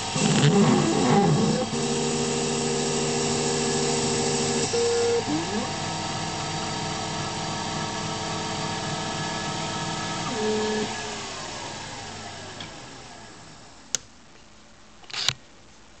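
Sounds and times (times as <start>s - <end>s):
spindle winding down: 4.7s - 5.8s.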